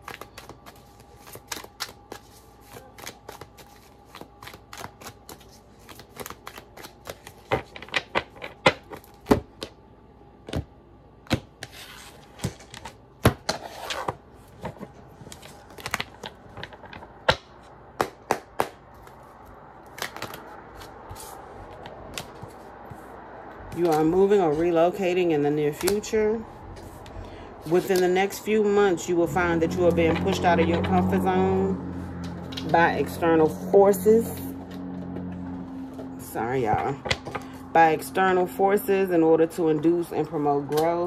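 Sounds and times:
cards shuffling: 0.0s - 9.7s, 11.3s - 23.1s
cards clicking and tapping: 0.0s - 9.8s, 14.6s - 19.2s.

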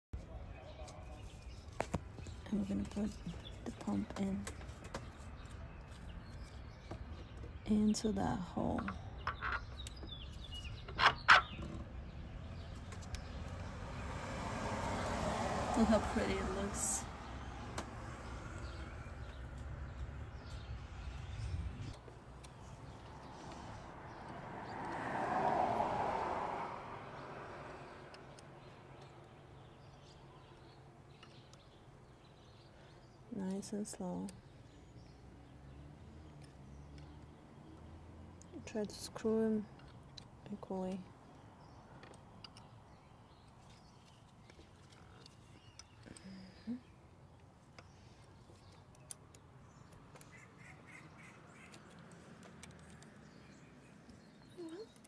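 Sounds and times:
vehicle driving past: 12.2s - 22.0s, 22.8s - 28.9s
faint evenly spaced ticks: 27.7s - 46.4s.

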